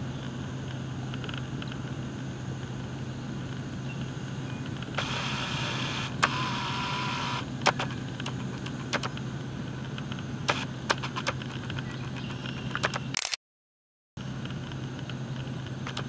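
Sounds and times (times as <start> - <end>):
faint steady whine: 0.0 - 13.0, 14.2 - 16.0
steady low hum: 0.0 - 13.2, 14.2 - 16.0
sharp clicks: 4.7 - 13.4, 14.4 - 16.0.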